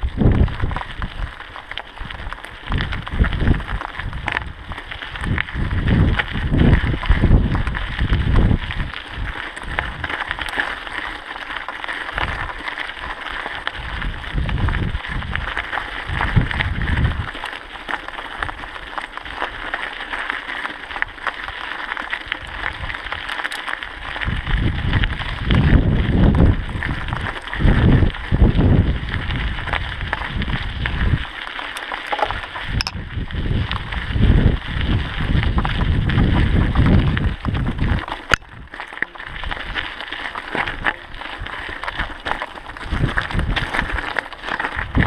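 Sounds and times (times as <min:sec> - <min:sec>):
wind buffeting microphone: 0:00.0 - 0:10.6, 0:13.7 - 0:17.4, 0:24.0 - 0:31.3, 0:32.1 - 0:39.8, 0:40.6 - 0:45.0
bike tyres crunching on gravel: 0:00.0 - 0:45.0.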